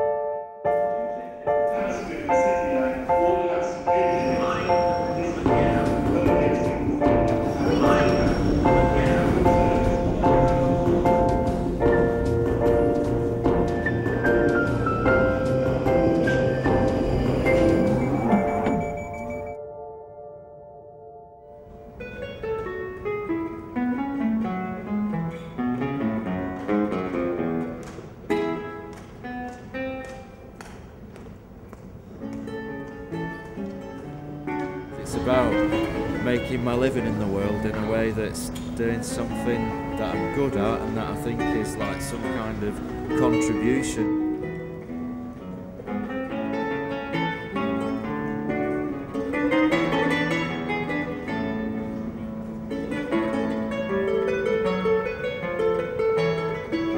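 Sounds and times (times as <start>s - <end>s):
acoustic guitar plucked notes: 3.9s - 30.1s, 32.2s - 56.9s
guitar strummed strokes: 32.2s - 56.9s.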